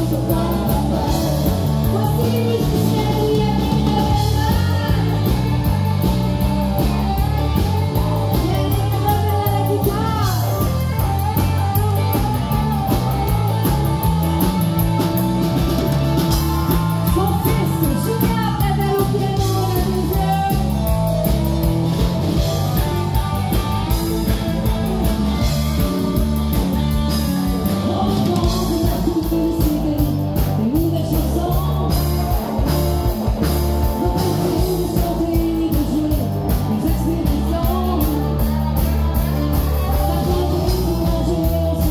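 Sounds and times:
woman singing: 0.0s - 14.4s, 16.7s - 21.0s, 27.6s - 32.9s, 33.8s - 41.9s
live band music: 0.0s - 41.9s.

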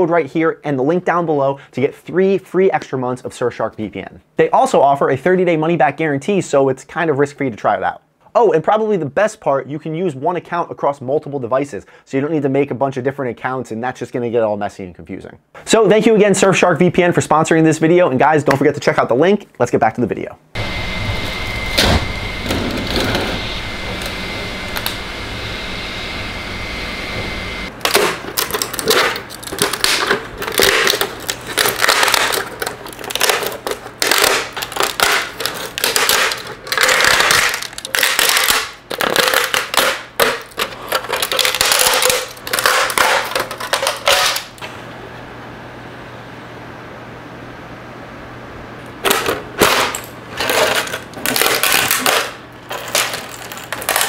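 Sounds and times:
steady hum with high tone: 20.5s - 54.0s
plastic parts cracking and snapping: 27.7s - 44.6s, 49.0s - 54.0s.

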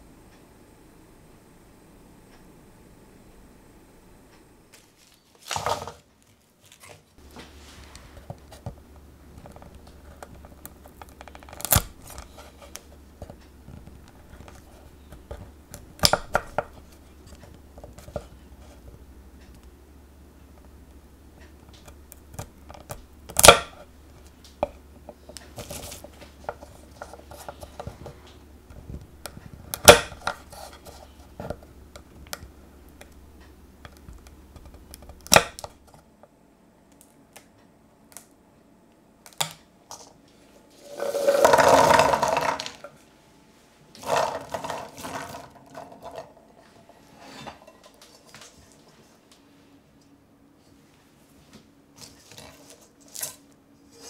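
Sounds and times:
chestnuts rattling in metal pot: 40.8s - 42.9s, 44.0s - 46.4s.

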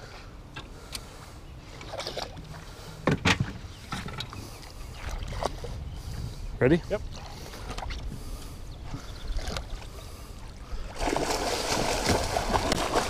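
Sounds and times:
water noise: 0.0s - 13.0s
wind: 0.0s - 13.0s
sharp knocks or splashes: 11.0s - 13.0s.

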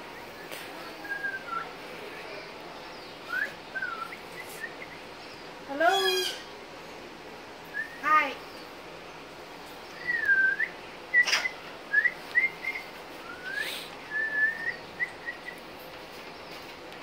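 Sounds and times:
parrot whistling and chirping: 10.0s - 15.6s.

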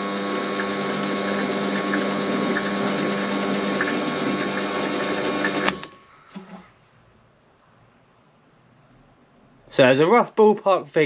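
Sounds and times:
lathe motor and gears whining: 0.0s - 5.9s.

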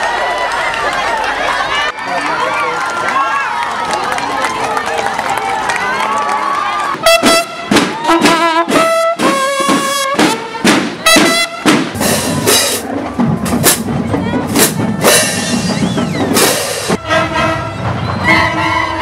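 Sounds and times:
marching band playing: 6.7s - 19.0s.

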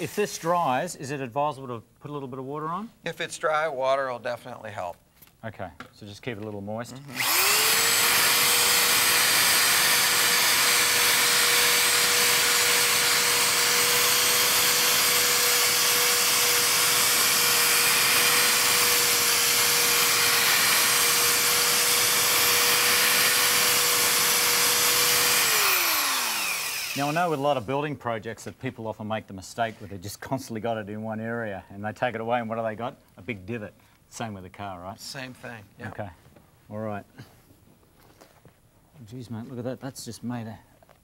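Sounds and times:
electric drill whining: 7.0s - 27.4s.

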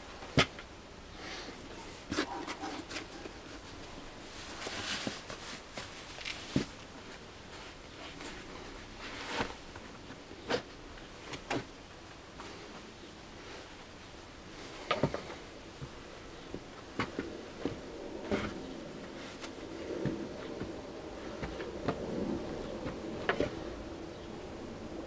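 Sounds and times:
boots and denim rustling: 1.9s - 10.7s, 14.6s - 23.8s.

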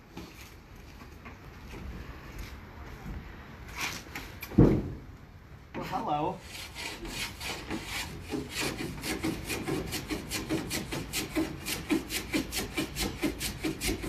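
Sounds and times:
rasp rubbing on plywood: 6.4s - 14.0s.

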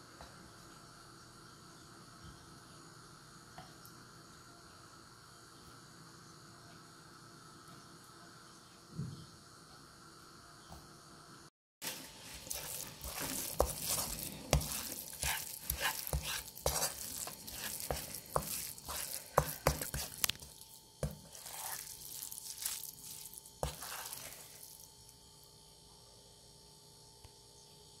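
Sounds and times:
spatula scraping and tapping pan: 11.8s - 24.7s
rice sizzling in frying pan: 11.8s - 25.3s.

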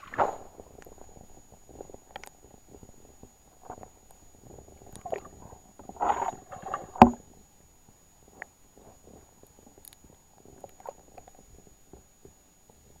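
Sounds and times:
muffled underwater splashing: 4.6s - 7.3s
sharp knock: 7.0s - 7.2s.

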